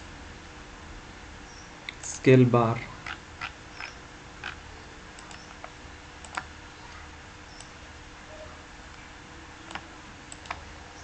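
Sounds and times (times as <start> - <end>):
faint steady hum: 0.0 - 11.0
computer mouse clicks: 5.2 - 6.5, 9.7 - 10.6.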